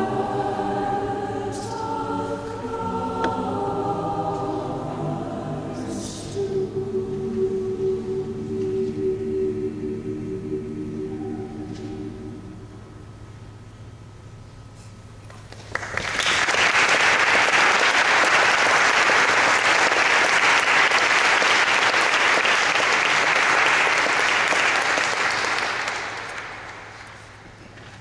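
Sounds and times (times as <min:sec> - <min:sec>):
audience applauding: 0:15.5 - 0:27.3.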